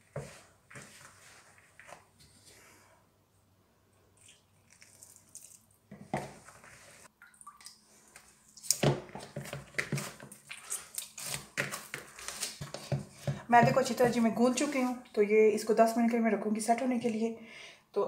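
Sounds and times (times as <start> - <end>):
dough kneading squelches: 0.0 - 3.2, 3.8 - 7.2, 7.8 - 15.2.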